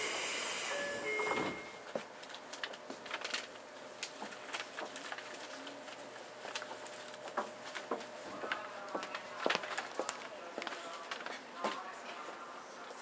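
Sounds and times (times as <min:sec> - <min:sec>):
hiss: 0:00.0 - 0:01.1.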